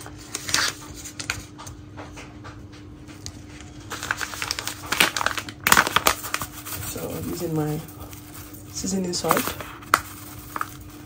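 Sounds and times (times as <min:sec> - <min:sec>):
rustling and crinkling: 0:00.0 - 0:11.0
steady hum: 0:00.0 - 0:11.0.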